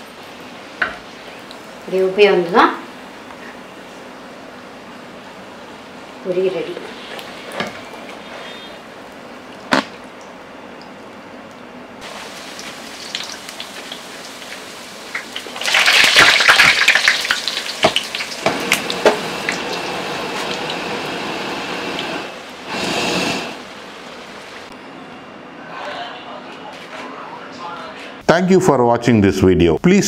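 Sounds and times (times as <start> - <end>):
dough sizzling in hot oil: 12.0 - 24.7.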